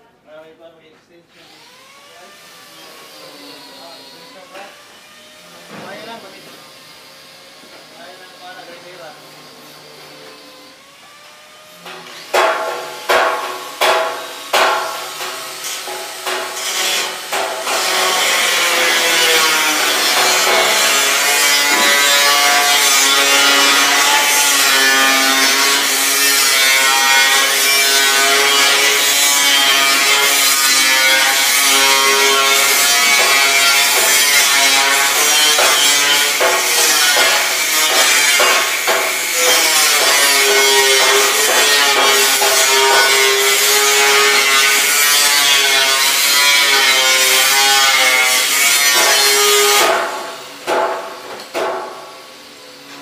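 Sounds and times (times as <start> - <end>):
grinding on metal: 11.8 - 51.0
hammer blows on metal sheet: 12.3 - 18.2, 33.1 - 43.2.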